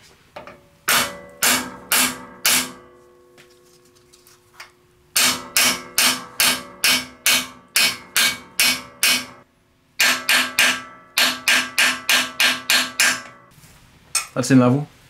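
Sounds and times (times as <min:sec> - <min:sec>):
hammer tapping metal: 0:00.4 - 0:03.5, 0:04.6 - 0:13.5.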